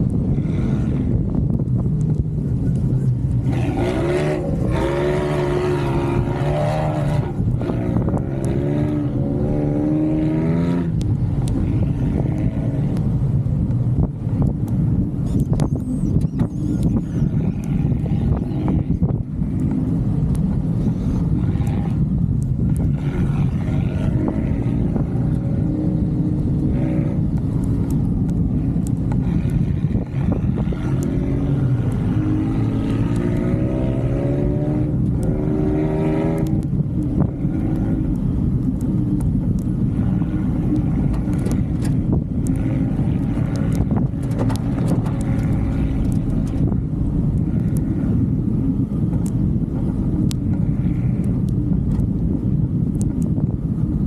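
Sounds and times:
vehicle engine and road noise: 0.0 - 54.0
engine revving: 3.3 - 13.1, 22.7 - 38.9, 39.6 - 46.8.

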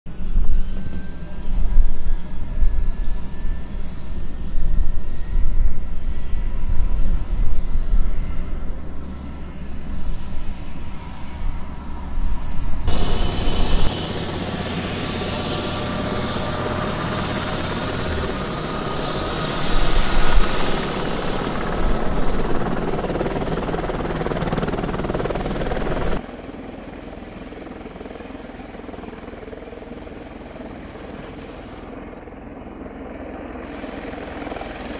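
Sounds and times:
low rumble: 0.1 - 26.2
helicopter rotor noise: 0.1 - 34.9
helicopter turbine whine: 0.1 - 34.9.

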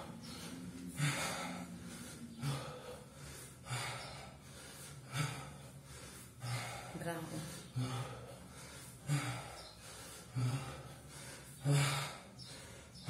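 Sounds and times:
man breathing hard: 0.0 - 13.0.

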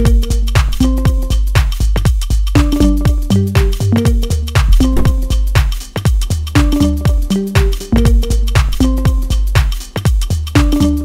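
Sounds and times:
electronic dance music: 4.6 - 5.5.

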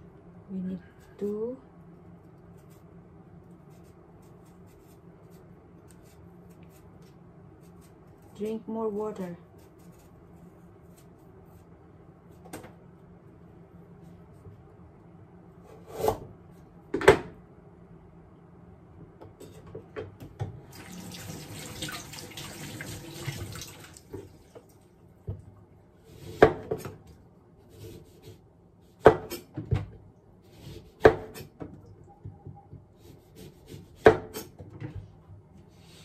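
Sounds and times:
knife chopping on wooden board: 26.2 - 27.0, 29.0 - 29.8, 30.5 - 31.6, 33.0 - 34.7.

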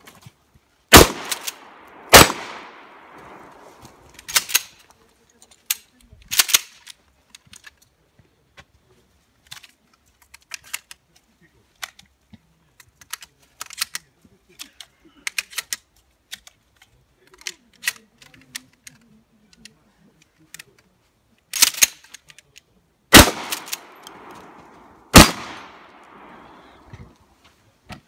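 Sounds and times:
shotgun blasts echoing: 0.9 - 4.1, 23.1 - 26.9
shotgun action clack: 0.9 - 4.6, 23.1 - 26.5
shotgun shells clicking in: 1.1 - 4.7, 23.2 - 26.4.

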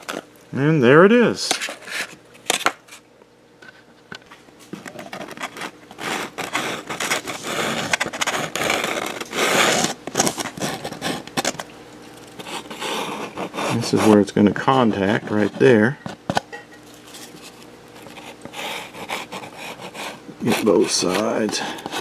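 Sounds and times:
foam pieces scraping: 5.4 - 11.6.

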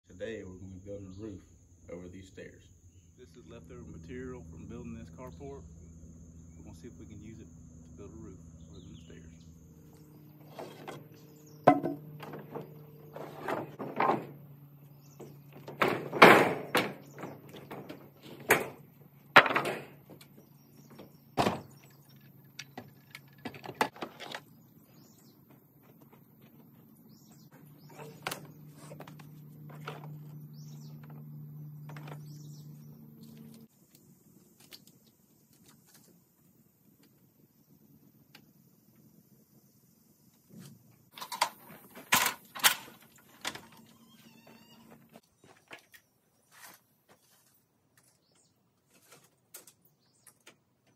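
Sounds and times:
steady low hum: 0.1 - 45.2
thunks and clanks of tools: 10.2 - 24.6, 27.5 - 32.6, 40.5 - 45.9.

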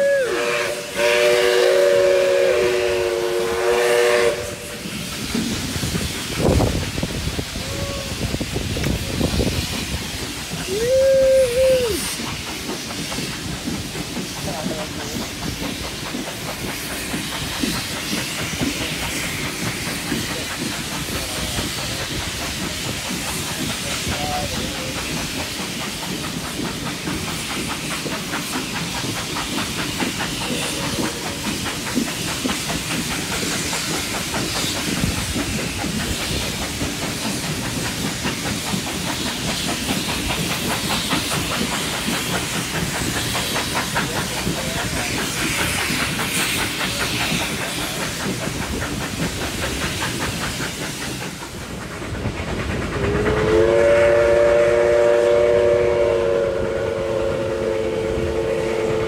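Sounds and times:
steam whistle: 0.0 - 4.8, 53.1 - 59.0
train rushing and hissing: 0.0 - 59.0
wheels clattering on rails: 8.5 - 55.1.

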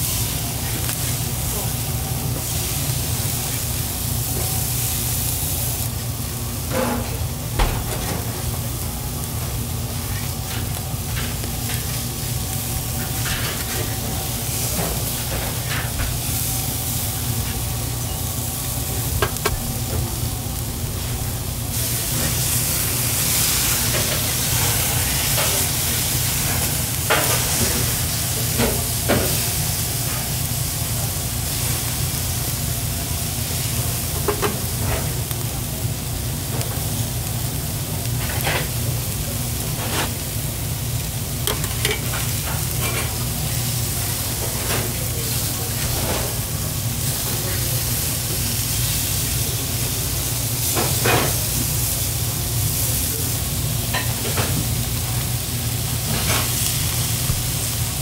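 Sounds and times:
burger patties sizzling on grill: 0.0 - 58.0
metal spatula scraping grill: 13.0 - 16.0, 39.8 - 40.2, 41.4 - 43.2.

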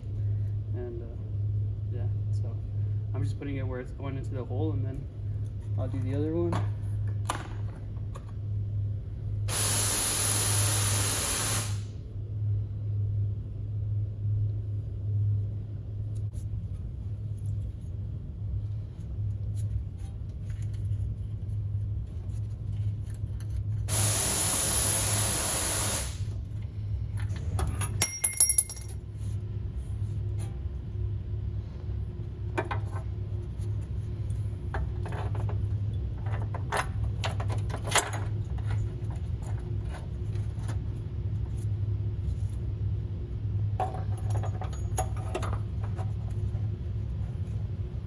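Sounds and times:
low hum: 0.0 - 9.6, 11.6 - 48.0
small metallic clinks: 27.7 - 29.0.

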